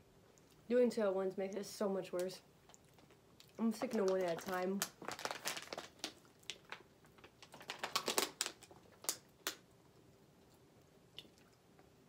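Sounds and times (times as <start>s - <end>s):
plastic water bottle crackling: 3.0s - 9.6s.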